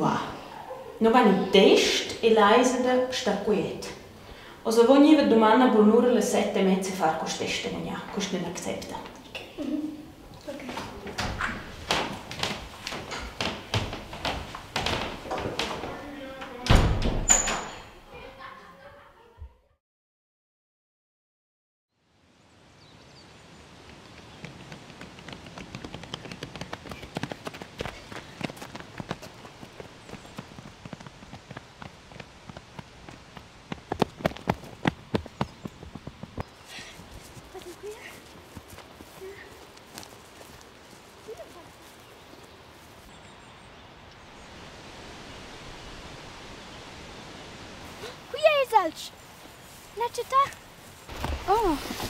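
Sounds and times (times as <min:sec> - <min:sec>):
steady outdoor noise: 0:00.0 - 0:18.9, 0:22.0 - 0:52.0
running footsteps on gravel: 0:23.9 - 0:43.1.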